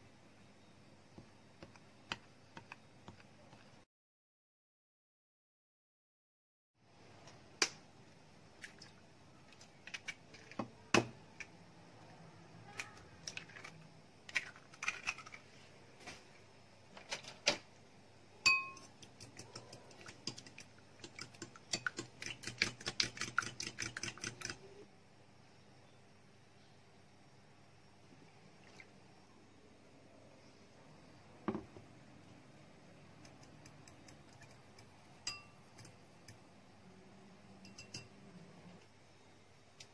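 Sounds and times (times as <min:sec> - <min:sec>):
glass bowl ringing: 0:18.4 - 0:18.8, 0:35.3 - 0:35.6
utensils clinking on glass bowls: 0:18.5 - 0:18.9
eggs beaten in a glass bowl: 0:18.5 - 0:24.7.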